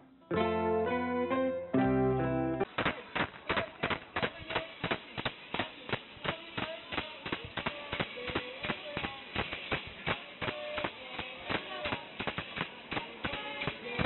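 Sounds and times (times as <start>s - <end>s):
people clapping a steady beat: 2.7s - 14.0s
people singing: 3.0s - 14.0s.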